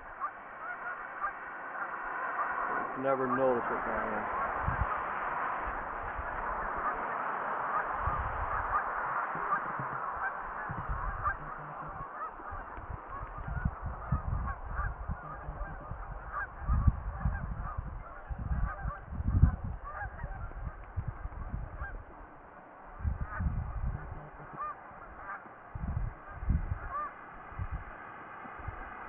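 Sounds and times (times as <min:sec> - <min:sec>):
geese honking: 0:00.0 - 0:29.0
low rumble: 0:02.7 - 0:27.9.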